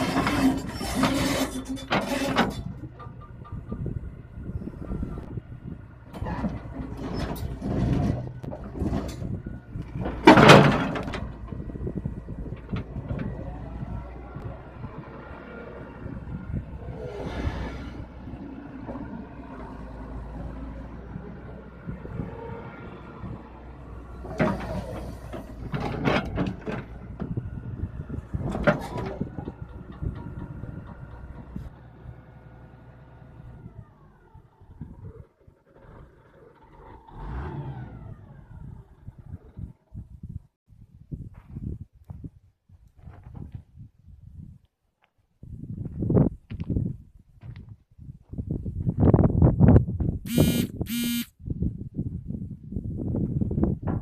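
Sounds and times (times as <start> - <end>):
steel track chain clanking: 0.0 - 4.1
steel track parts clanking: 0.0 - 5.4, 6.0 - 14.2, 24.1 - 27.4, 28.1 - 32.2
excavator diesel engine running: 0.0 - 17.0, 17.9 - 39.7, 50.3 - 51.3.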